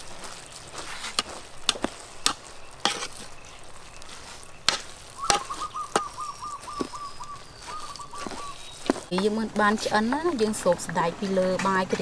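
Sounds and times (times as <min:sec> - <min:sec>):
bird chirping: 0:02.0 - 0:09.2.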